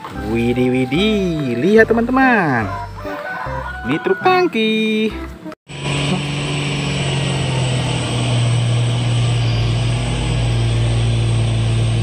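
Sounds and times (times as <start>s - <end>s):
truck diesel engine under load: 5.7s - 12.0s.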